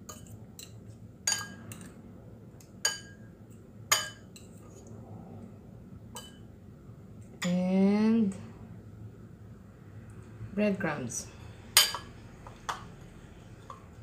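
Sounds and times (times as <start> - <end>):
fork clinking against bowl: 0.0 - 1.9.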